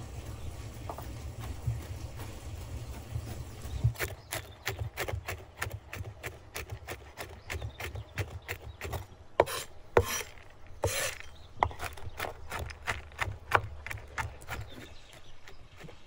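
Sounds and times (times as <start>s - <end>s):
cleaver chopping on wooden board: 3.9s - 16.0s
blade scraping board: 7.9s - 16.0s.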